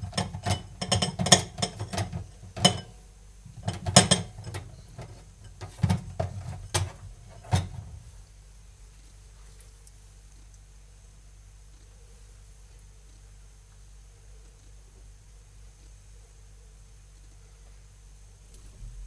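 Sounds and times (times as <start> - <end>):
kitchen items clicking and knocking: 0.0 - 7.9
low rumble: 18.5 - 19.0.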